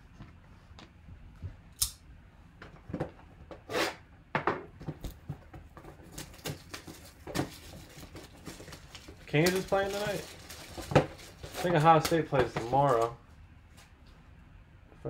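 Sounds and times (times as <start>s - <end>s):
shrink wrap being cut and torn: 6.1s - 12.3s.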